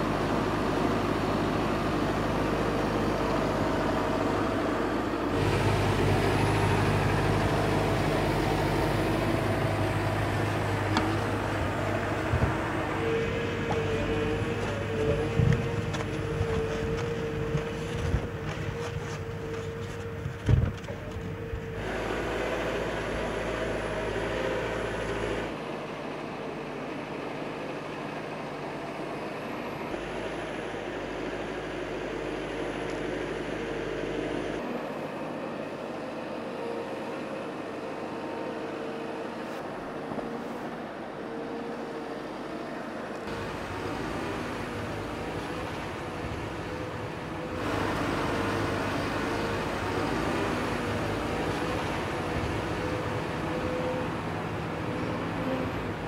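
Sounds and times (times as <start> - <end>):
diesel engine running: 0.0 - 56.0.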